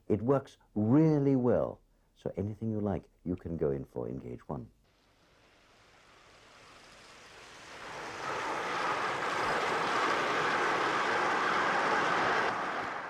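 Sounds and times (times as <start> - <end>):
model train running on track: 5.8 - 13.0.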